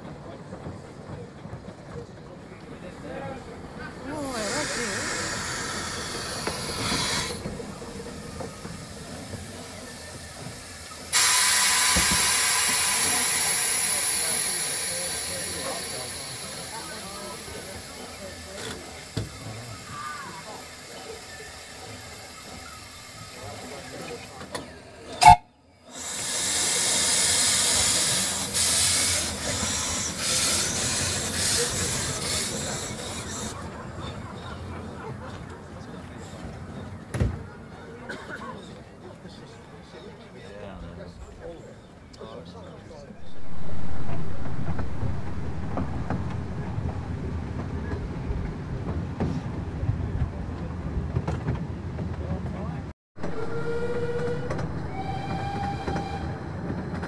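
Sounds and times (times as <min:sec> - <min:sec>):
steam locomotive rumbling: 0:00.0 - 0:38.0, 0:43.1 - 0:57.0
steam hissing: 0:04.1 - 0:33.6, 0:53.2 - 0:57.0.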